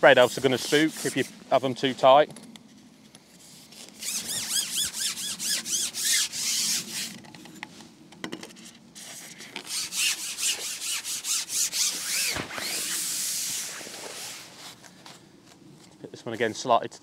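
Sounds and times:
fishing pole rasping squeaks: 4.0 - 7.1.

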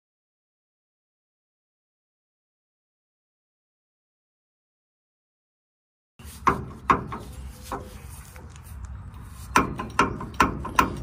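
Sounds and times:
rubbing and handling noise: 6.2 - 11.0
sharp knocks and clunks: 6.4 - 8.0, 9.5 - 11.0.

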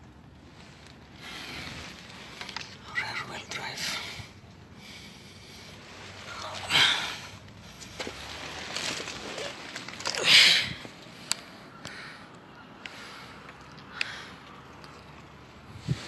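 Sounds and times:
heavy breaths close to microphone: 0.4 - 9.0.

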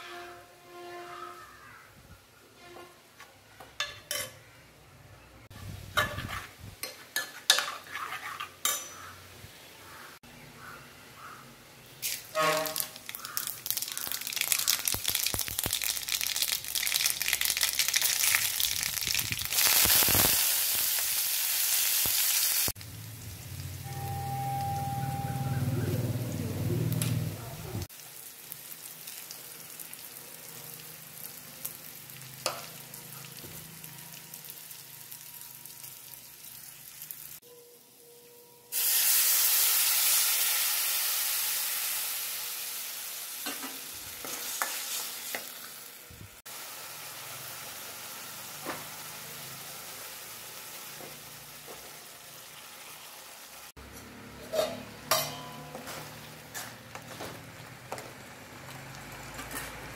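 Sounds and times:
metal spoon clinking against pan: 3.8 - 4.4, 6.0 - 9.1, 54.4 - 56.1
oil sizzling in a pan: 12.0 - 24.8, 26.9 - 37.4, 38.7 - 53.8.

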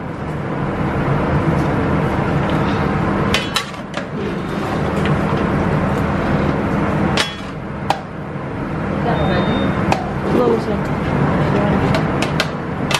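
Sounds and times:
steady loud roar with hum: 0.0 - 12.9.

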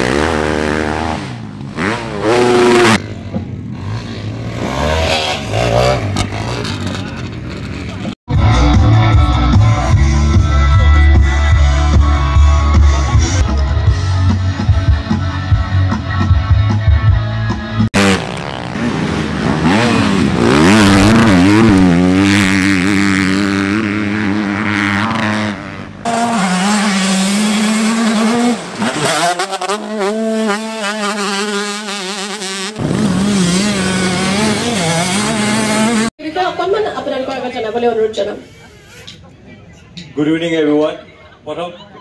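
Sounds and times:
dirt bike engines revving: 0.0 - 8.7, 17.7 - 36.1.

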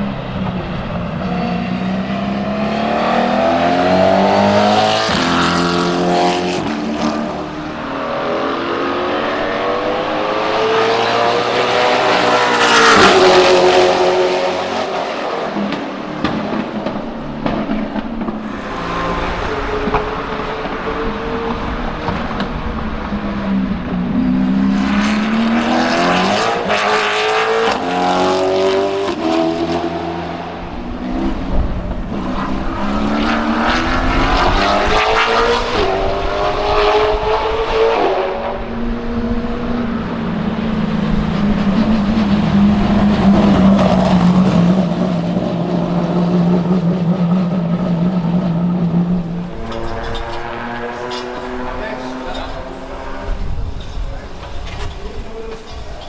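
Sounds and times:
race car engine accelerating: 0.2 - 55.7.

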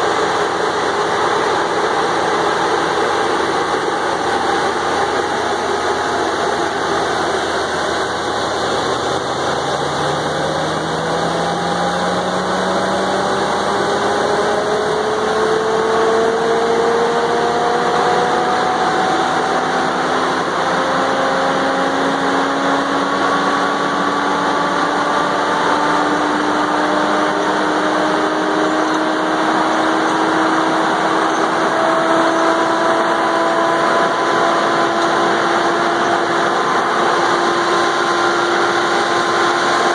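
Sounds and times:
machine rumble: 0.0 - 20.8
rising machine whine: 0.0 - 39.9.

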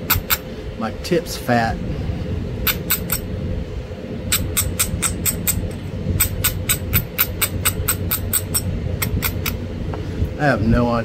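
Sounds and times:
stone-on-tool clicks: 2.7 - 3.3, 4.3 - 9.6.

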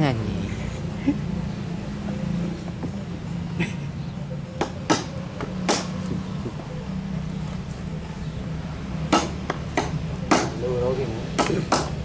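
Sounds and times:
engine humming: 0.0 - 12.0
sharp knocks: 4.6 - 6.3, 9.1 - 10.6, 11.4 - 12.0.

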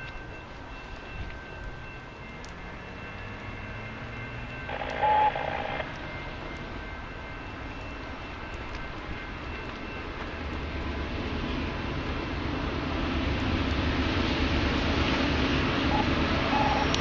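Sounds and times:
freight train rumble: 0.0 - 17.0
short loud tone: 15.9 - 17.0.

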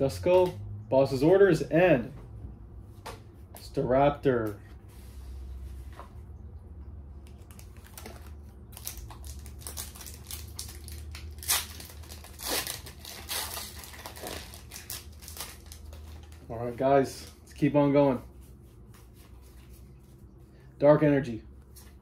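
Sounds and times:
foil wrapper crinkling: 7.3 - 16.6
foil ripping: 7.4 - 16.4.

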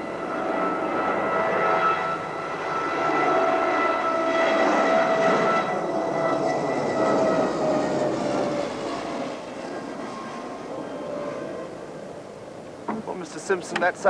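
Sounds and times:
propeller airliner flying past: 0.0 - 14.0.

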